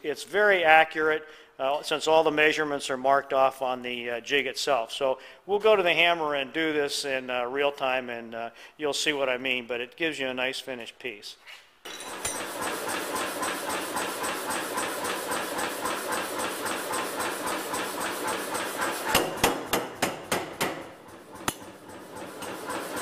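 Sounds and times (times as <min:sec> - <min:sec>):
power hammer striking: 0:11.9 - 0:14.0, 0:18.8 - 0:23.0.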